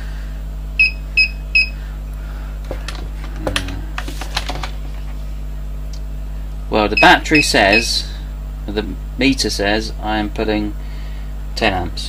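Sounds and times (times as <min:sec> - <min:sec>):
steady low hum: 0:00.0 - 0:12.0
meter beeps: 0:00.8 - 0:01.8, 0:07.0 - 0:07.9.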